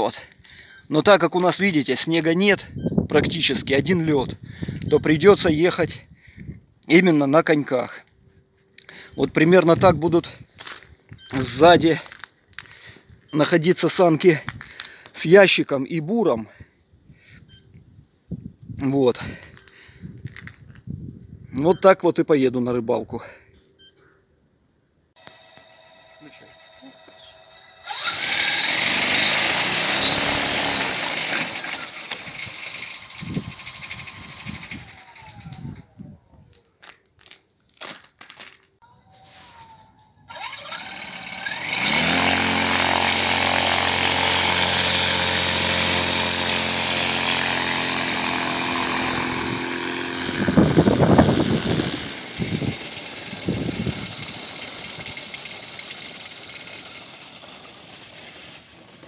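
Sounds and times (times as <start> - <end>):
propeller motor whining: 25.2 - 36.0, 40.3 - 59.0.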